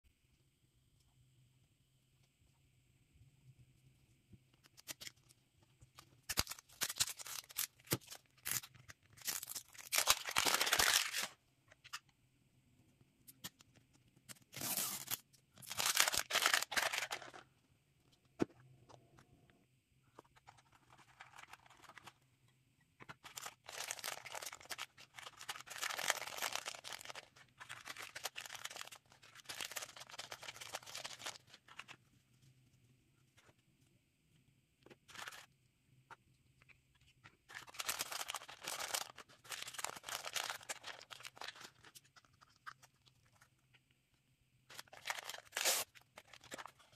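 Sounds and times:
plastic packaging crinkling and tearing: 0:06.0 - 0:12.0, 0:14.4 - 0:17.5, 0:20.3 - 0:22.2, 0:23.0 - 0:32.0, 0:35.1 - 0:35.5, 0:37.5 - 0:43.5, 0:44.7 - 0:46.9.

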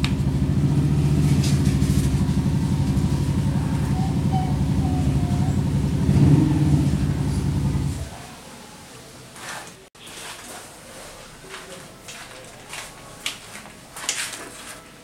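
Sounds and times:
machine throbbing: 0:00.0 - 0:08.1.

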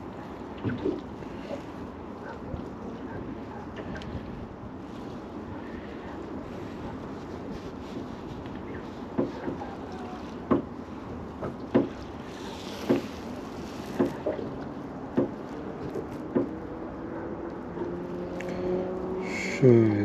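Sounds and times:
boat knocking: 0:09.1 - 0:10.8, 0:11.4 - 0:13.2, 0:13.8 - 0:16.6.

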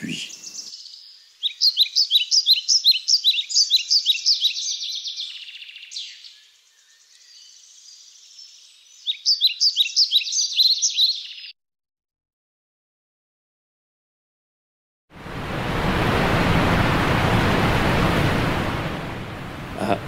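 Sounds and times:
bird chirping rapidly: 0:00.0 - 0:06.3, 0:07.2 - 0:11.5.

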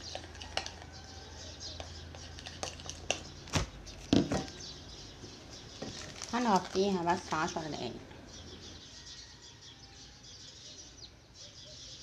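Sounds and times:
utensil scraping glass bowl: 0:00.0 - 0:00.9, 0:01.9 - 0:03.3.

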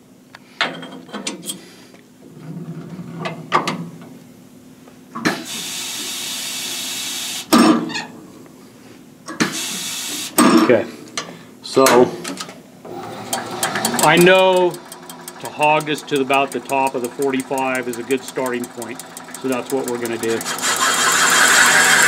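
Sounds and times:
metal tooling clicking and tapping: 0:13.6 - 0:20.4.

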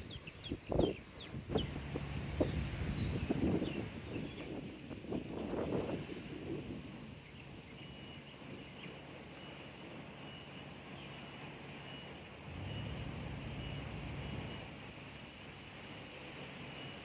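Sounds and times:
distant motor hum: 0:00.0 - 0:17.0
soft outdoor noise: 0:00.0 - 0:17.0
faint high chirp: 0:07.2 - 0:14.8.

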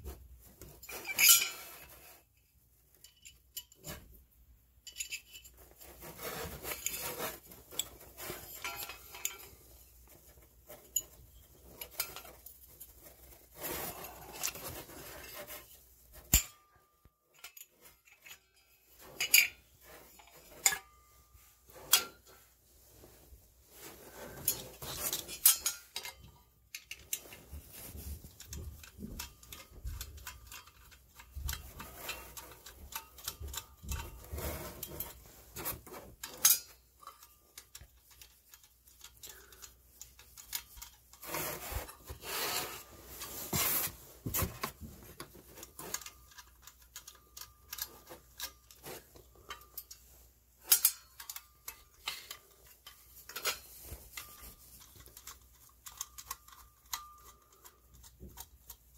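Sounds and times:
screwdriver scraping metal: 0:00.8 - 0:02.1.

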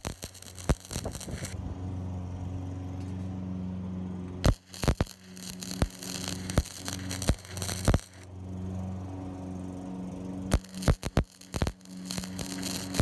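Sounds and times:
sharp pops of arc striking: 0:00.0 - 0:01.6, 0:04.4 - 0:08.2, 0:10.5 - 0:13.0
welding arc crackling and sputtering: 0:00.0 - 0:01.6, 0:04.4 - 0:08.3, 0:10.4 - 0:13.0
steady low hum: 0:00.0 - 0:13.0.

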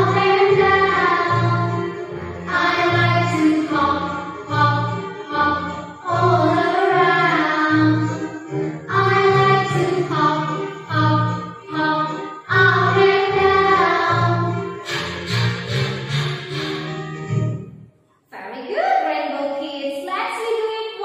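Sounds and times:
children's song singing: 0:00.0 - 0:16.7.

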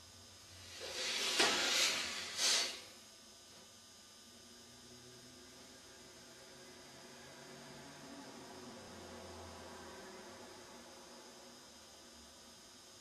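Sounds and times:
forceful nasal breathing: 0:00.7 - 0:02.8.

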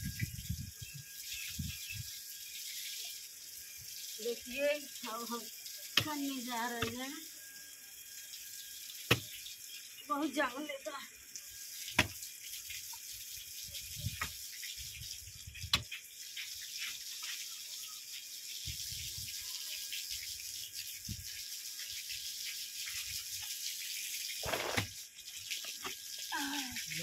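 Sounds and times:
pickaxe striking soil: 0:24.4 - 0:24.9.

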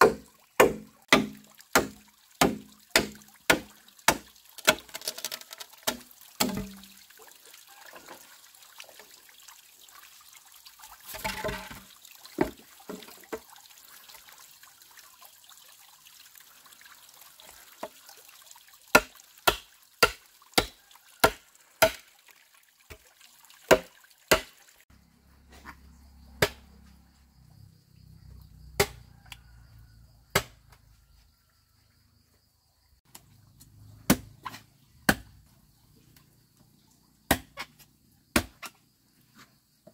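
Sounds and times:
bamboo splintering crack: 0:00.0 - 0:06.8, 0:18.9 - 0:22.1, 0:23.7 - 0:24.5, 0:28.8 - 0:29.0, 0:30.3 - 0:30.6, 0:37.3 - 0:37.7
machete chopping bamboo: 0:00.0 - 0:06.8, 0:18.9 - 0:22.1, 0:23.7 - 0:24.6, 0:26.4 - 0:26.7, 0:28.8 - 0:29.0, 0:30.3 - 0:30.6, 0:34.0 - 0:35.4, 0:37.3 - 0:38.8.

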